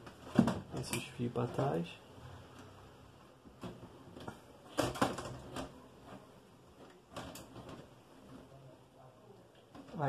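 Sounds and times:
computer case being handled: 3.5s - 8.6s.

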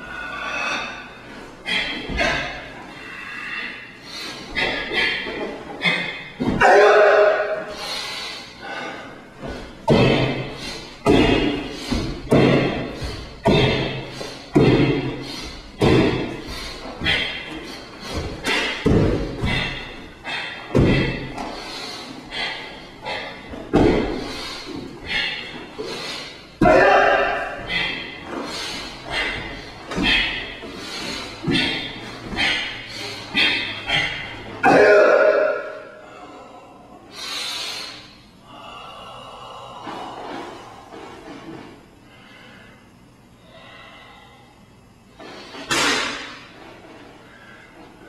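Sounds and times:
person breathing forcefully: 0.0s - 48.0s
bare feet thumping on wooden floor: 11.1s - 15.2s, 15.8s - 19.9s, 20.7s - 21.6s, 23.5s - 24.9s.

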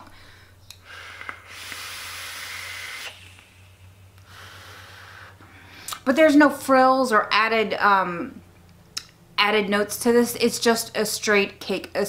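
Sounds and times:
breathy exhale: 0.1s - 5.9s
airy hiss of vape draw: 1.2s - 5.0s.

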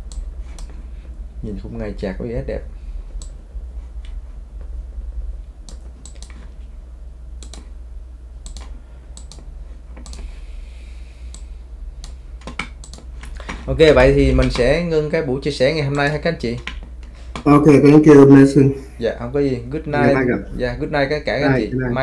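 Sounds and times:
keyboard and mouse clicks: 0.0s - 0.8s, 5.6s - 6.6s, 7.4s - 7.7s, 8.4s - 10.3s, 11.3s - 13.6s
low electrical hum: 0.0s - 22.0s.

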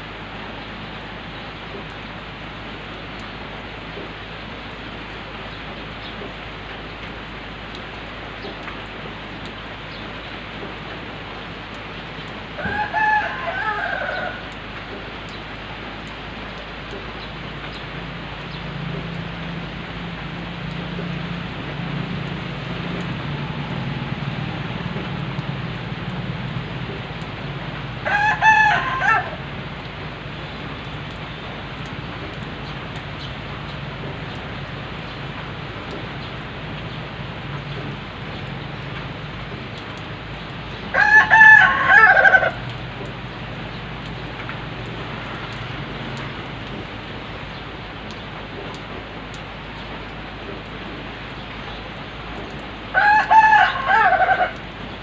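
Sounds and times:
steady rain falling: 0.0s - 55.0s
rooster crowing: 12.6s - 14.6s, 28.0s - 29.5s, 40.9s - 42.7s, 52.9s - 54.6s.

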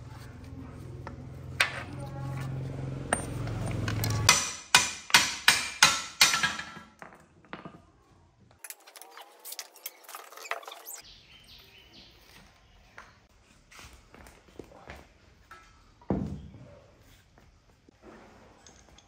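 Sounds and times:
hammer striking steel: 3.1s - 6.9s.

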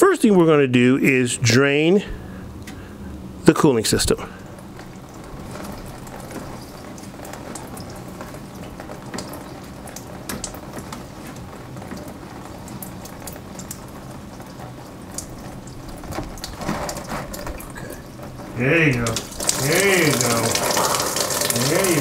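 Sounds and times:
coolant dripping into tub: 2.1s - 22.0s
steady hiss: 17.0s - 22.0s.

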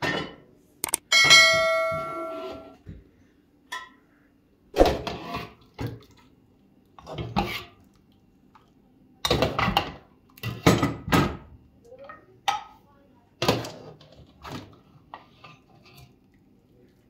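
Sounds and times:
metallic clang ringing: 1.0s - 2.7s.

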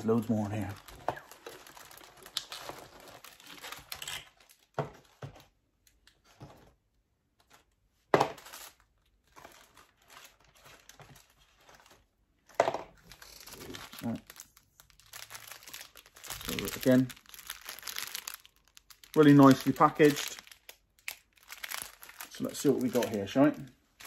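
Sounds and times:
plastic packaging crinkling: 0.0s - 5.5s, 8.2s - 24.0s.

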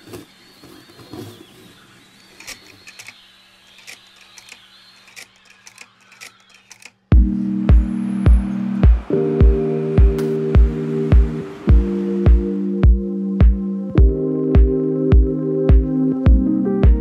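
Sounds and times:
music with heavy beat: 7.1s - 17.0s.

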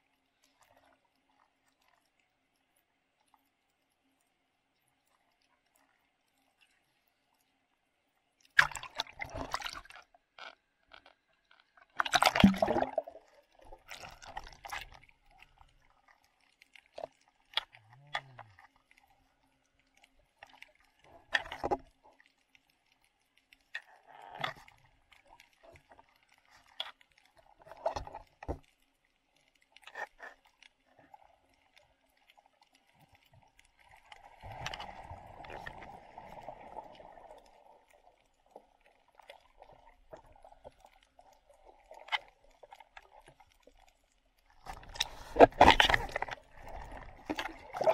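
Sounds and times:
soft underwater knocks and clicks: 8.4s - 47.9s
rushing water: 12.0s - 14.9s, 44.6s - 47.9s.

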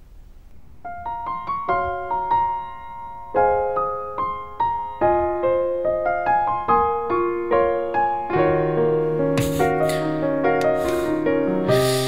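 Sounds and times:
soft piano music: 0.5s - 12.0s.

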